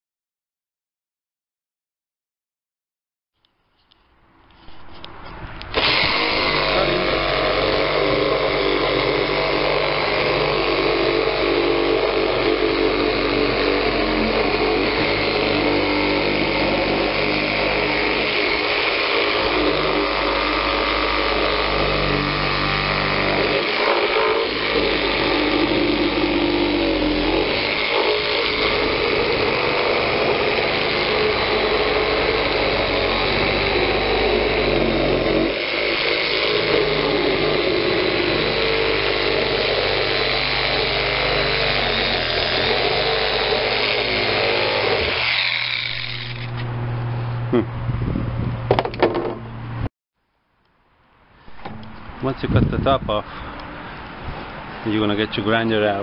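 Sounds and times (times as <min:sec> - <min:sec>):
reciprocating saw cutting plastic: 0:03.8 - 0:47.6.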